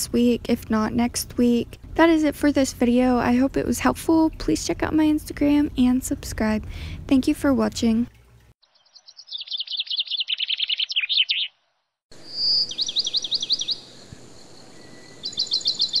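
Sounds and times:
songbird singing: 8.6s - 16.0s.

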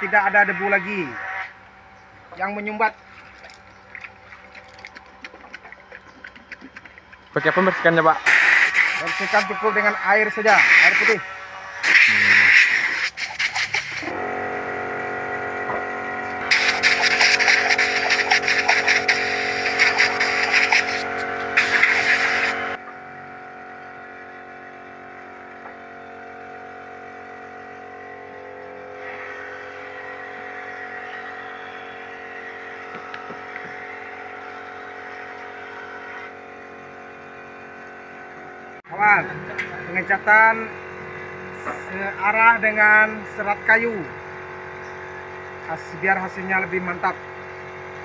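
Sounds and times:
air compressor motor running: 5.1s - 48.0s
spray gun hissing bursts: 8.2s - 9.5s, 10.4s - 11.2s, 11.8s - 14.1s, 16.5s - 22.6s.

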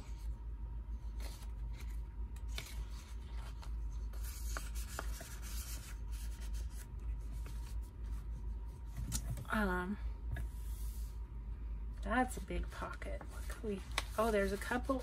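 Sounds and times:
paper rustling and scraping: 1.0s - 9.3s, 12.6s - 15.0s.

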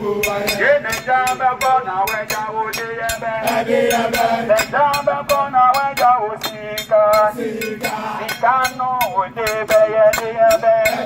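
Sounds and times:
group of voices chanting: 0.0s - 1.4s, 3.1s - 5.4s, 6.6s - 8.4s.

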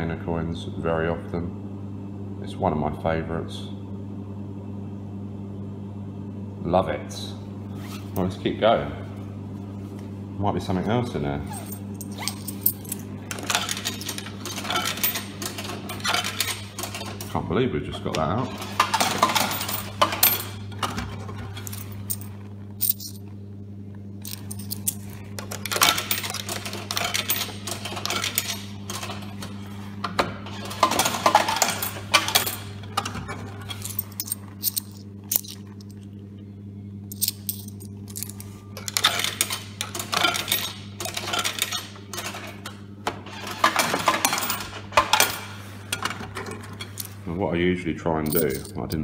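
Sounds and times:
coins clinking into a cup: 11.5s - 17.3s, 18.6s - 20.6s, 21.5s - 23.2s, 24.2s - 29.4s, 30.5s - 32.7s, 33.6s - 36.0s, 37.1s - 42.6s, 43.4s - 45.5s, 48.2s - 49.0s.

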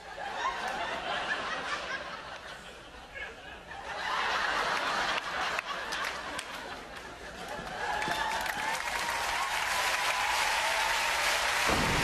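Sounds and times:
audience laughing: 0.0s - 8.4s
scattered clapping: 7.5s - 12.0s.

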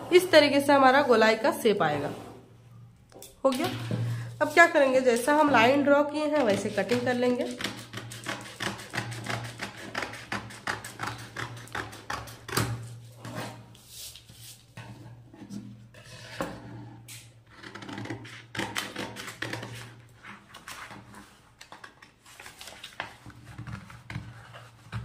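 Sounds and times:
scissors snipping paper: 6.4s - 12.5s.

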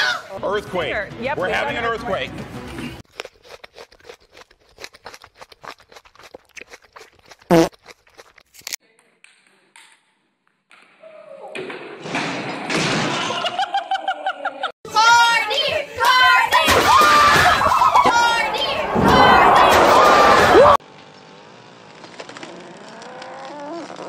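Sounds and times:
groundhog crunching ice cream cone: 3.0s - 8.8s
voices: 15.0s - 20.8s.

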